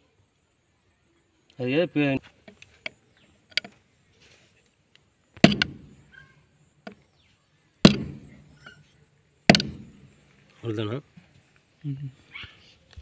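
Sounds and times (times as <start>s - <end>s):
light taps on metal: 5.4s - 6.1s, 7.8s - 8.8s, 9.5s - 10.2s
metallic hammer strikes: 5.4s - 6.1s, 7.8s - 8.7s, 9.5s - 10.2s.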